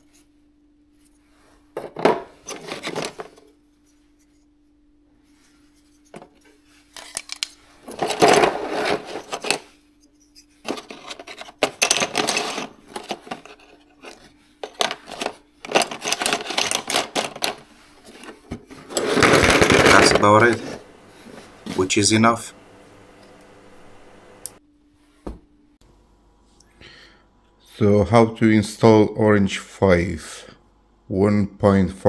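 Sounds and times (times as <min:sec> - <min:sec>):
adapters clattering in cardboard box: 0:01.8 - 0:03.4, 0:07.0 - 0:09.6, 0:10.6 - 0:20.8.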